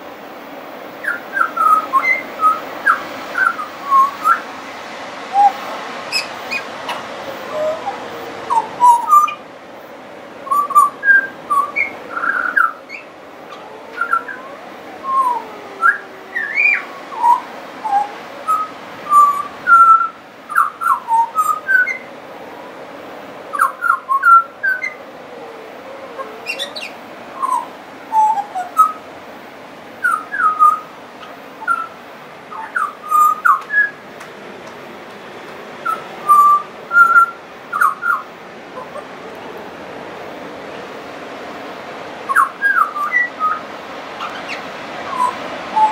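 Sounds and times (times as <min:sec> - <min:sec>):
bird singing whistled notes: 0:01.0 - 0:04.5, 0:05.3 - 0:09.4, 0:10.4 - 0:22.1, 0:23.5 - 0:25.0, 0:26.2 - 0:29.0, 0:30.0 - 0:34.0, 0:35.8 - 0:39.0, 0:42.3 - 0:45.9.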